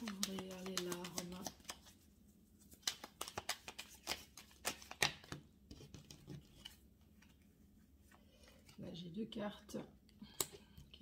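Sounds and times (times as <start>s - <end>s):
cards being shuffled: 0.0s - 7.4s.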